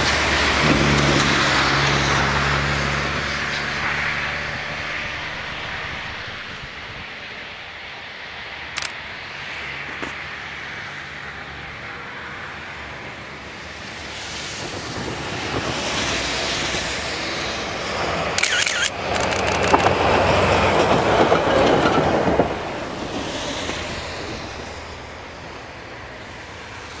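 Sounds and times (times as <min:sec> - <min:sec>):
diesel locomotive passing: 0:00.0 - 0:27.0
sharp clicks: 0:08.7 - 0:09.0, 0:18.4 - 0:20.0.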